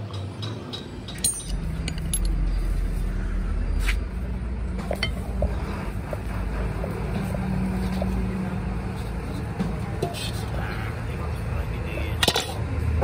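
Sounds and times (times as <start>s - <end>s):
metal clinks: 0.4s - 2.6s.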